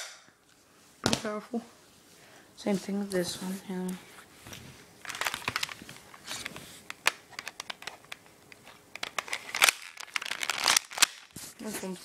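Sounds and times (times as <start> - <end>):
sharp pistol snap: 0.0 - 0.3
plastic pistol clicks and rattles: 8.9 - 11.3.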